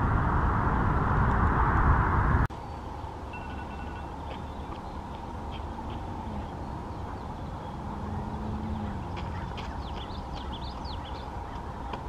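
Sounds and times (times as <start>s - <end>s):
low background noise: 0.0s - 12.0s
ducklings peeping: 3.9s - 12.0s.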